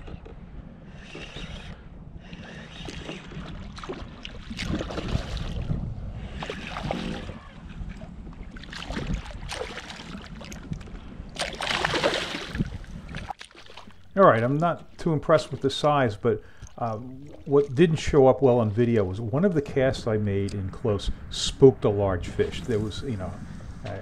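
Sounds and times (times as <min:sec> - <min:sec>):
wind rumbling on microphone: 0:00.0 - 0:13.4, 0:14.3 - 0:24.0
fish splashing and thrashing: 0:00.0 - 0:18.2
water slapping against hull: 0:01.0 - 0:20.9.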